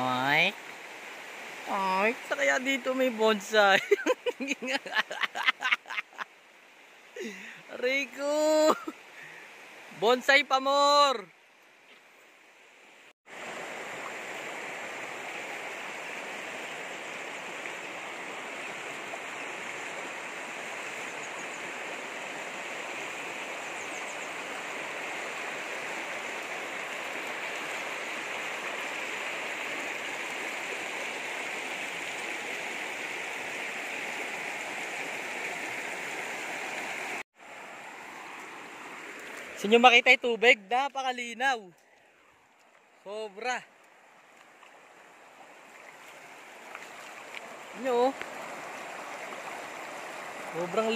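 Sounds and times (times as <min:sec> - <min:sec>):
river rushing over stones: 0:00.0 - 0:03.8, 0:12.4 - 0:41.4, 0:42.5 - 0:50.9.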